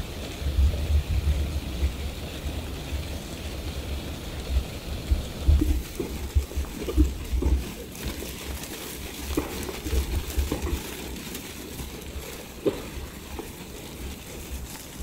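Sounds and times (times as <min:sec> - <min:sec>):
hooves on gravel: 0:04.3 - 0:15.0.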